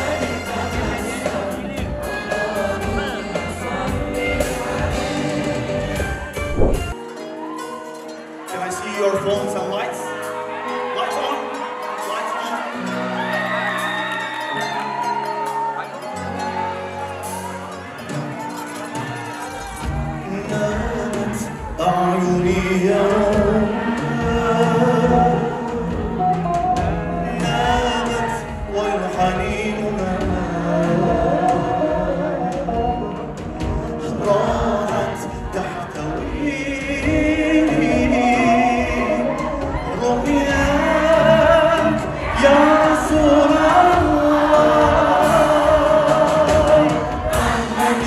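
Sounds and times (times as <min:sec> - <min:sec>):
person singing: 0:00.0 - 0:06.9, 0:19.9 - 0:48.0
backing vocalists: 0:00.0 - 0:07.0, 0:09.8 - 0:48.0
live band music: 0:00.0 - 0:48.0.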